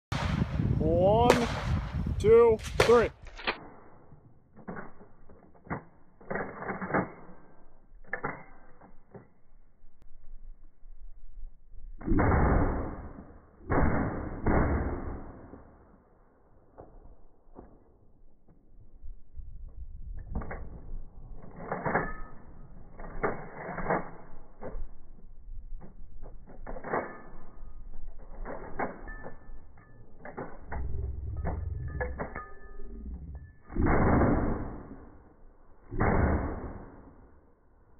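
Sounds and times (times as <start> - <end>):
rifle shots: 12.1 - 15.6, 33.8 - 35.0, 36.0 - 37.1
metallic bolt clacks: 25.8 - 33.8.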